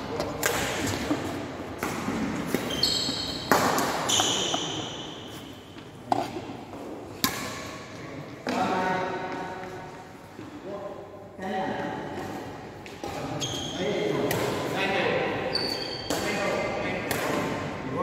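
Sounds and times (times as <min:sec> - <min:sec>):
rackets hitting shuttlecock: 0:00.2 - 0:09.9, 0:14.1 - 0:14.7, 0:15.6 - 0:17.7
shoes squeaking on wooden floor: 0:02.5 - 0:06.3, 0:13.2 - 0:13.8, 0:15.5 - 0:16.1.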